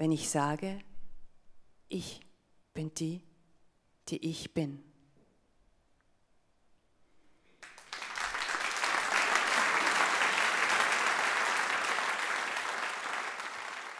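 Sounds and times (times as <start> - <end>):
audience applauding: 7.6 - 13.9.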